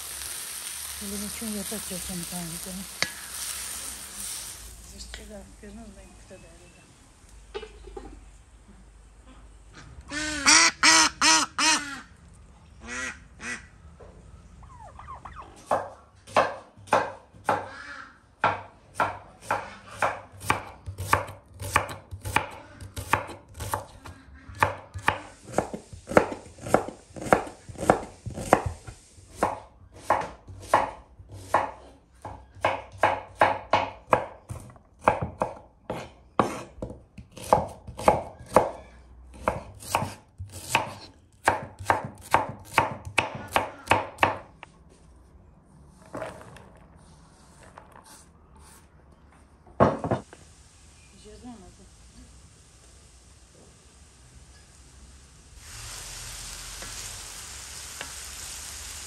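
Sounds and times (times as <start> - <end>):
ducks quacking: 12.8 - 13.7
knife chopping on wooden board: 29.4 - 38.7, 39.4 - 44.4.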